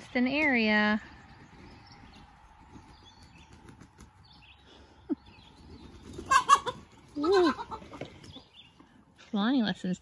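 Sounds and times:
chickens squawking and clucking: 0:01.3 - 0:09.0.

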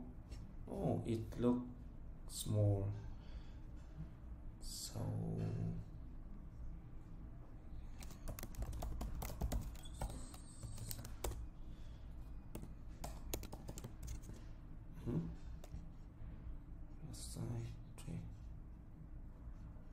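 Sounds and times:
low steady hum: 0:00.0 - 0:19.9
keyboard typing clicks: 0:08.0 - 0:11.4, 0:12.5 - 0:14.4.

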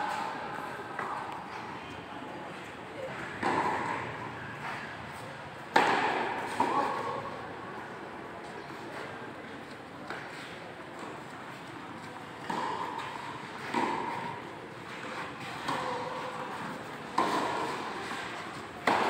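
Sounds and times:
tennis ball hit by rackets: 0:03.4 - 0:04.8, 0:05.7 - 0:07.2, 0:12.4 - 0:19.0.

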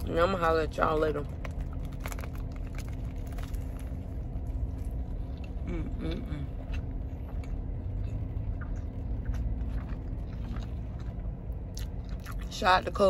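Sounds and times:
car engine rumble: 0:00.0 - 0:13.0
chewing food with crunches: 0:01.2 - 0:05.7, 0:06.4 - 0:12.6
person humming: 0:05.6 - 0:06.5.

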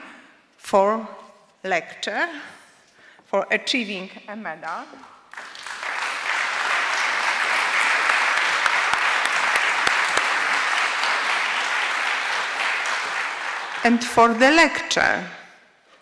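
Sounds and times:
audience applauding: 0:05.3 - 0:14.4.

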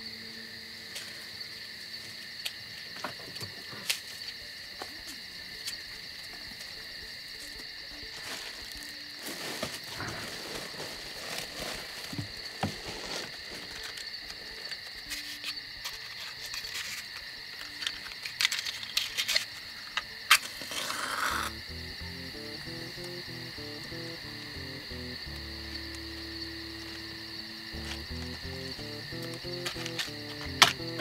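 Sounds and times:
frogs and insects calling: 0:00.0 - 0:31.0
rustling noise: 0:08.2 - 0:14.1.

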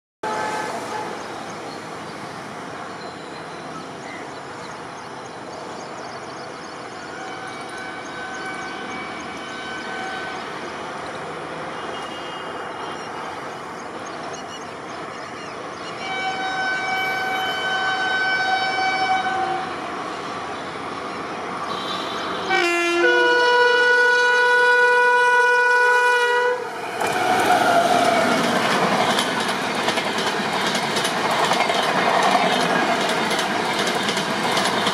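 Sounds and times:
train horn blasts: 0:00.2 - 0:01.2, 0:07.1 - 0:10.6, 0:11.8 - 0:12.9, 0:16.0 - 0:19.8, 0:21.7 - 0:26.8
train wheels rumbling: 0:15.8 - 0:34.9
rail clatter: 0:26.7 - 0:34.9.

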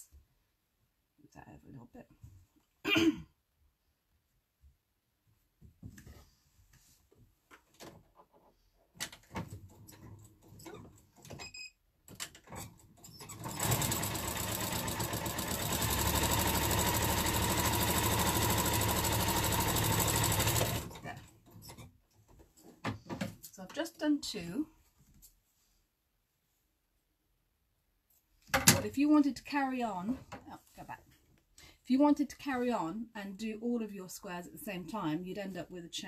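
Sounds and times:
sewing machine stitching: 0:12.4 - 0:21.6.

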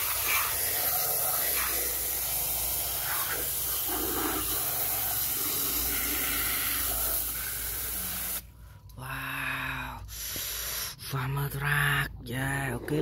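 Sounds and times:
hose spray hissing on plastic: 0:00.0 - 0:08.5.

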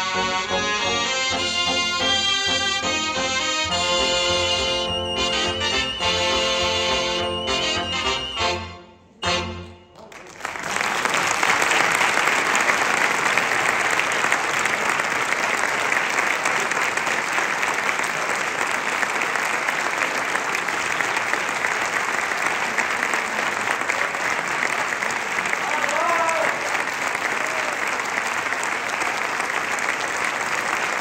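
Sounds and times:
audience applause: 0:10.0 - 0:31.0.

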